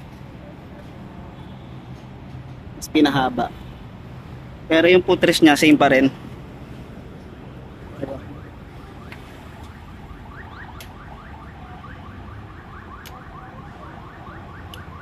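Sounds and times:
car alarm chirping: 8.1s - 15.0s.

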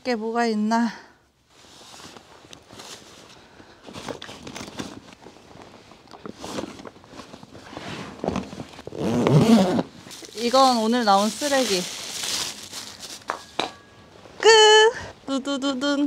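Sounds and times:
fabric bags and straps rustling: 1.4s - 13.7s.

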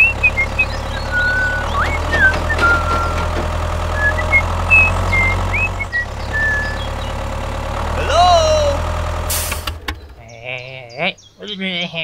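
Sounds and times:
whistled chirps: 0.0s - 7.1s
tractor engine drone: 0.0s - 10.7s.

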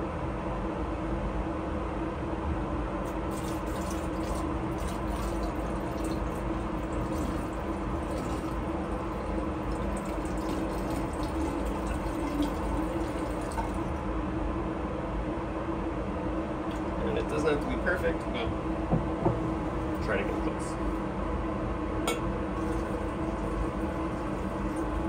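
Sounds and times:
liquid pouring into glass cylinder: 3.0s - 14.0s, 22.5s - 25.0s.

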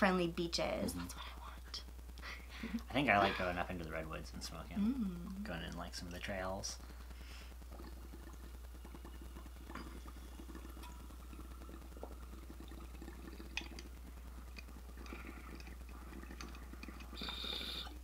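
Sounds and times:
water bubbling through glass pipe: 7.6s - 18.0s.

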